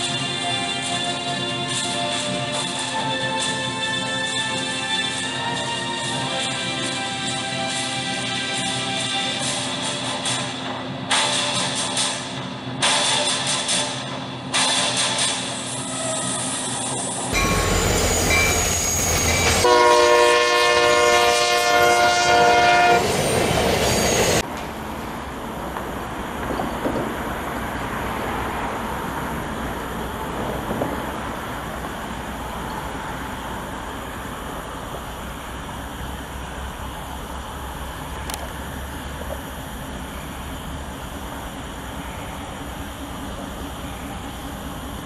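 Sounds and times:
distant train rumble: 0.0s - 45.0s
rail noise: 0.0s - 45.0s
train horn chord: 19.4s - 23.1s.

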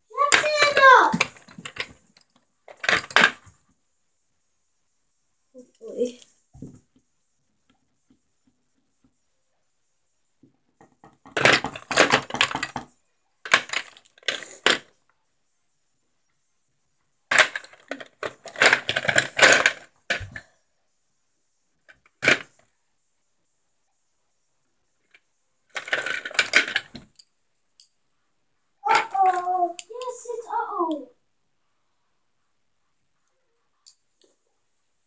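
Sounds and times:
hard small objects rattling: 0.2s - 2.1s, 2.7s - 3.5s, 11.2s - 14.8s, 17.3s - 20.4s, 25.7s - 27.0s.

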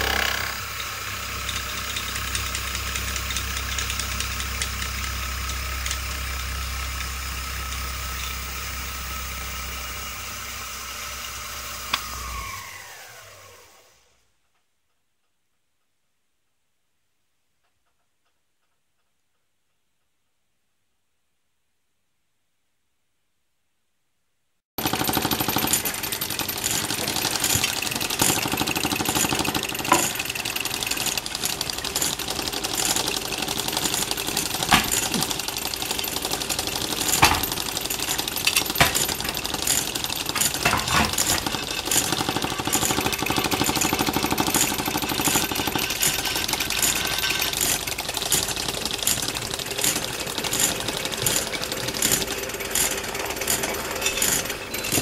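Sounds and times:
model engines clattering: 0.0s - 8.6s, 24.8s - 55.0s.

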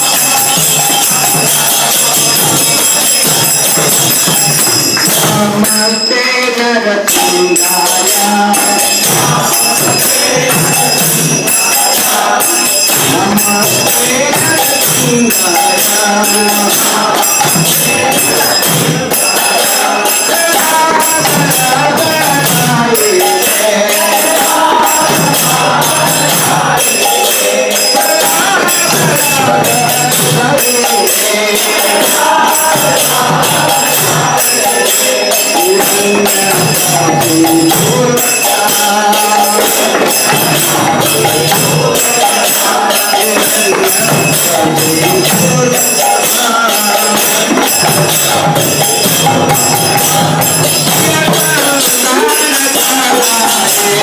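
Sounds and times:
drums beating: 0.0s - 6.1s, 6.7s - 54.0s
hand cymbals ringing: 0.0s - 54.0s
voices singing: 0.0s - 54.0s
hands clapping: 4.5s - 5.3s.

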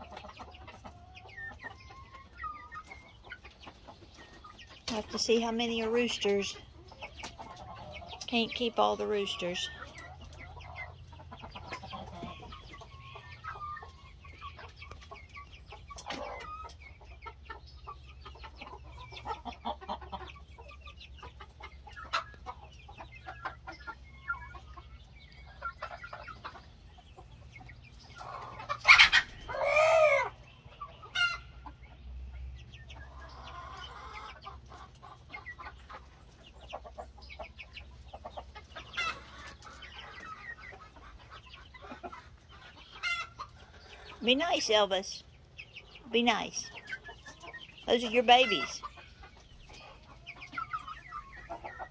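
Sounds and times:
chickens clucking: 0.0s - 51.9s
loud chicken call: 28.2s - 30.4s.

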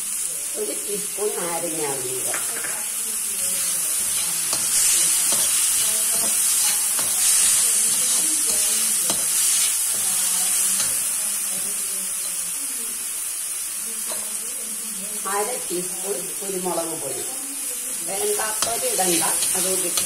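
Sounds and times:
vegetables sizzling in a wok: 0.0s - 20.0s
spatula scraping a wok: 3.4s - 11.7s, 18.1s - 20.0s.

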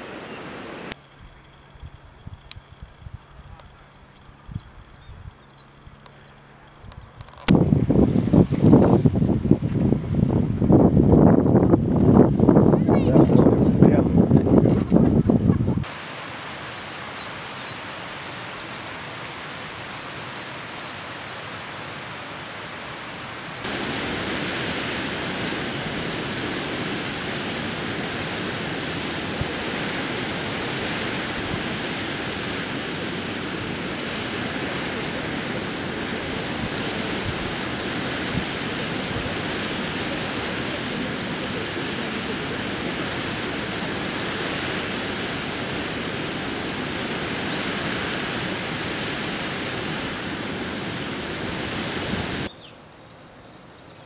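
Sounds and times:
river rushing over rocks: 15.8s - 52.5s.

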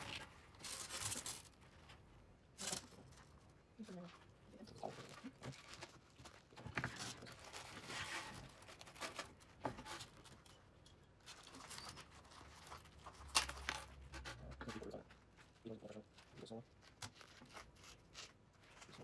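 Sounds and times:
plastic bag rustling: 0.0s - 2.0s.

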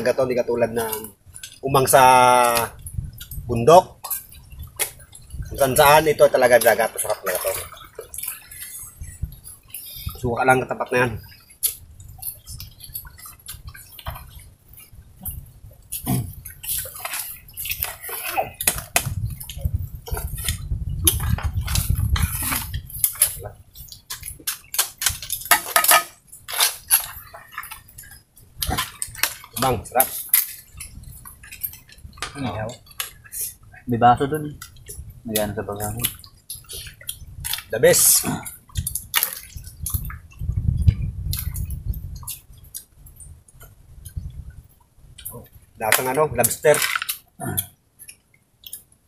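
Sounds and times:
shells clinking on plates: 25.5s - 26.2s
shellfish shells clicking: 45.9s - 47.7s.

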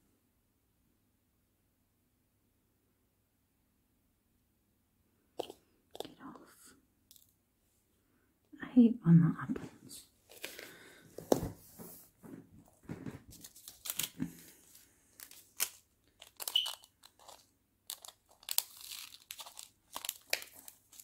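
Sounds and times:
plastic packets crinkling: 10.3s - 10.8s, 13.3s - 21.0s.

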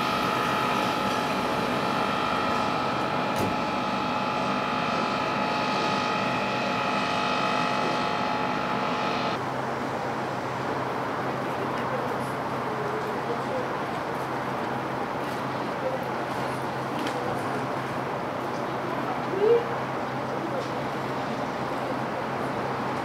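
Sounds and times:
crane machinery whine: 0.0s - 11.3s
machinery hum: 0.0s - 12.7s.

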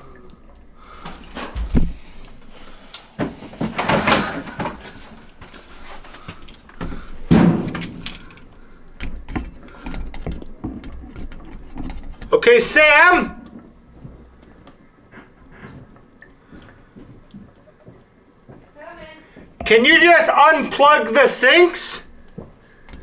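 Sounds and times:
drain snake cable rattling: 3.5s - 12.4s.

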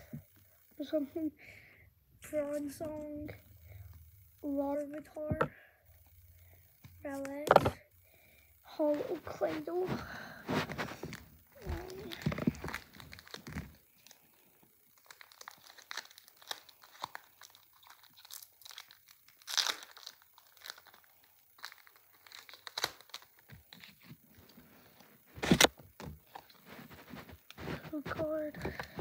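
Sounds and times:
foil wrapper crinkling and tearing: 10.4s - 29.0s.

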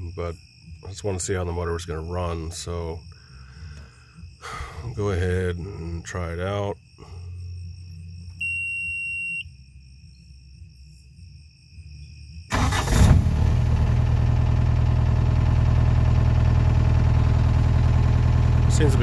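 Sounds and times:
diesel engine cranking and idling: 12.5s - 19.0s.

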